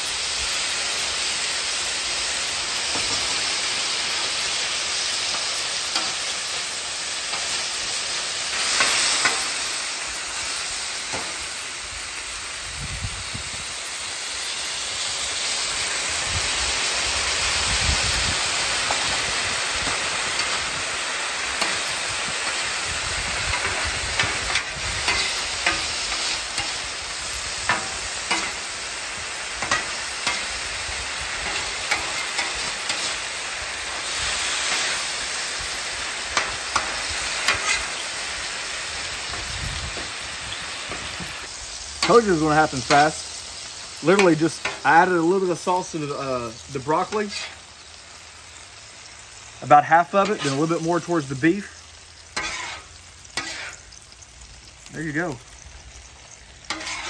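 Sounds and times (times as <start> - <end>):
sauce sizzling on a griddle: 0.0 - 57.0.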